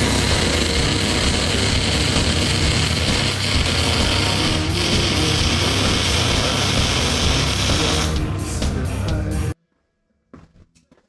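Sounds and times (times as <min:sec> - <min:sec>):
rock music: 0:00.0 - 0:09.6
steady bass: 0:00.0 - 0:09.6.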